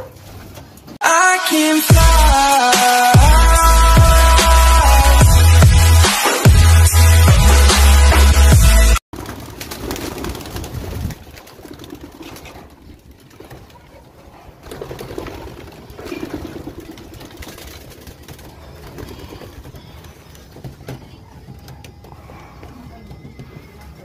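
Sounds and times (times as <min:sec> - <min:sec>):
wings flapping: 0:09.2 - 0:24.0.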